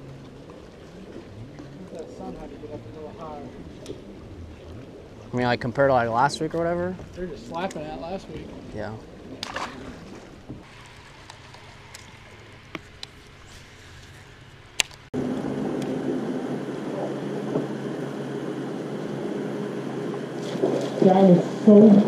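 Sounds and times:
steady hum with low drone: 0:00.0 - 0:22.0.

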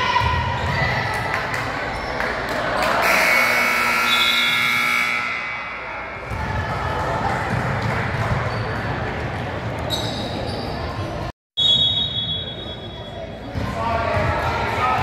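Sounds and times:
basketball bouncing on court: 0:06.2 - 0:09.3.

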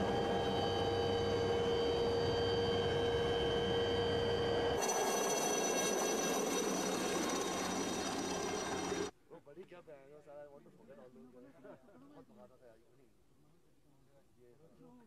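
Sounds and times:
helicopter turbine and rotor: 0:00.0 - 0:09.1.

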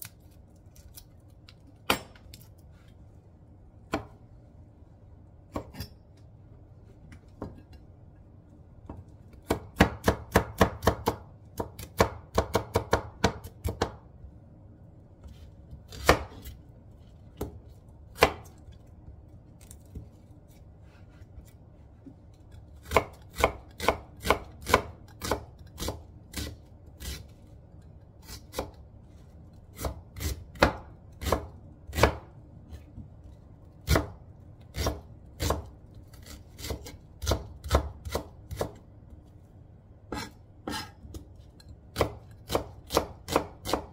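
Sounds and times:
knife chopping on cutting board: 0:09.4 - 0:14.0, 0:15.9 - 0:16.6, 0:18.2 - 0:18.6, 0:22.8 - 0:27.2, 0:29.8 - 0:32.3, 0:33.8 - 0:38.8, 0:40.1 - 0:41.2, 0:41.9 - 0:43.9.

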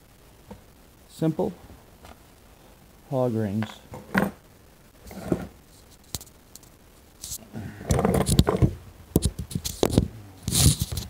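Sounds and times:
phone handling rubbing and knocks: 0:07.3 - 0:11.0.

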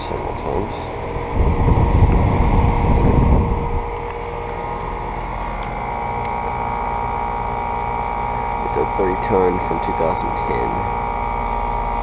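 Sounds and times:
air conditioner unit humming: 0:00.0 - 0:12.0
air blowing over microphone: 0:00.9 - 0:04.1.

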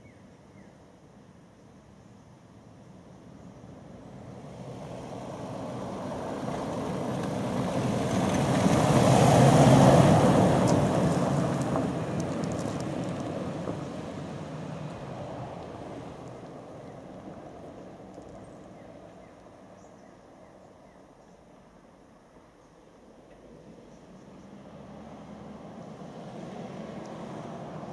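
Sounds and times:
vehicle driving past on gravel: 0:04.0 - 0:20.0, 0:23.3 - 0:27.9
stones ticking under tyres: 0:06.3 - 0:18.7, 0:26.9 - 0:27.4.

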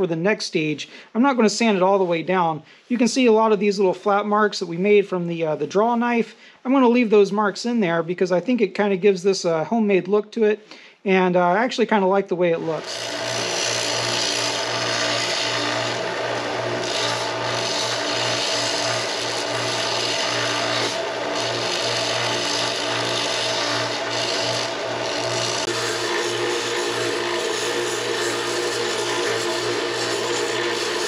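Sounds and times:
wood sanding rasp: 0:12.6 - 0:31.0
belt sander motor hum: 0:12.7 - 0:31.0.

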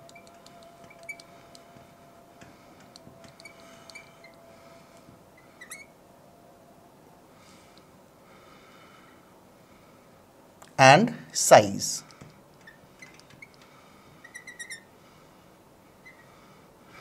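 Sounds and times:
marker pen squeaking on glass: 0:00.0 - 0:01.3, 0:03.2 - 0:04.4, 0:05.4 - 0:05.9, 0:12.6 - 0:13.6, 0:14.2 - 0:14.9, 0:16.0 - 0:16.3.

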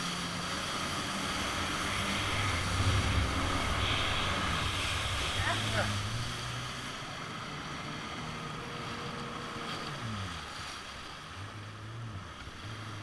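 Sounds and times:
wind on microphone: 0:00.0 - 0:07.1
water spray rushing: 0:00.0 - 0:07.3
jet ski engine drone: 0:00.0 - 0:13.0.

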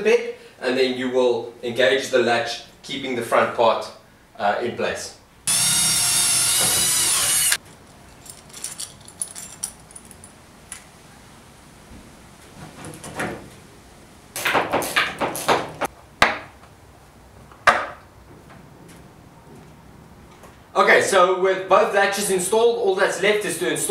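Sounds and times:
cordless drill whirring into wood: 0:05.5 - 0:07.6
metal hardware clicking and rattling: 0:07.6 - 0:10.8
sharp knocks: 0:14.4 - 0:16.5.

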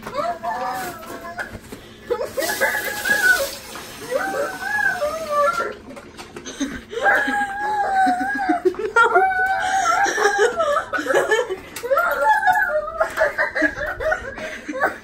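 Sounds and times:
child squealing: 0:00.1 - 0:01.6, 0:02.2 - 0:05.8.

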